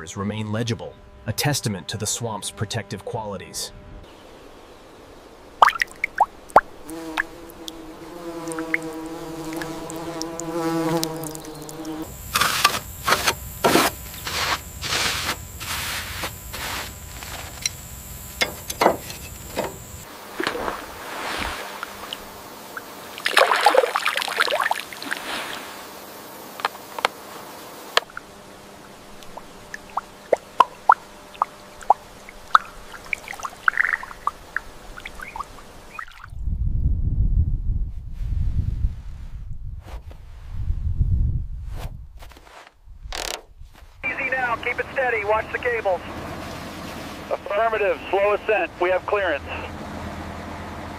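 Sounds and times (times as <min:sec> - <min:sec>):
buzzing hum: 0:00.0 - 0:37.9, 0:42.8 - 0:49.8
water dripping and trickling: 0:05.6 - 0:06.6, 0:08.4 - 0:12.0, 0:29.3 - 0:36.3.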